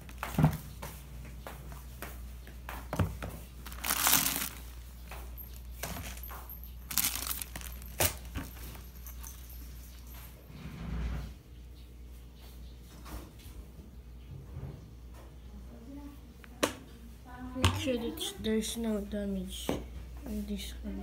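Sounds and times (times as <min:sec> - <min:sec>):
plastic bag crinkling: 0:03.6 - 0:09.6.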